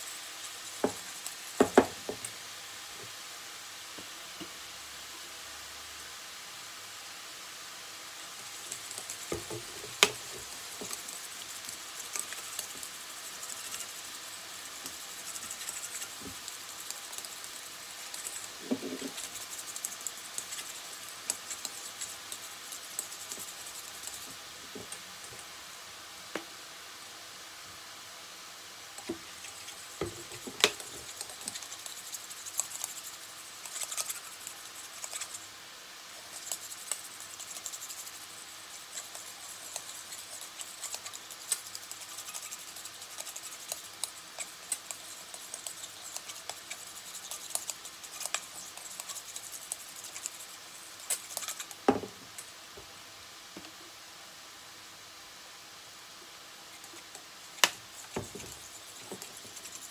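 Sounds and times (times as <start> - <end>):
utensil scraping metal bowl: 36.2 - 51.8, 57.9 - 59.9.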